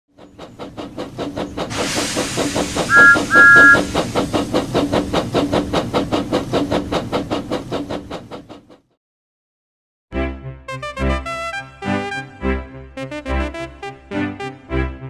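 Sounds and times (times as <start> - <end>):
steam locomotive chuffing: 0.1 - 9.0
steam hissing: 0.2 - 8.6
two-note whistle blasts: 2.9 - 3.8.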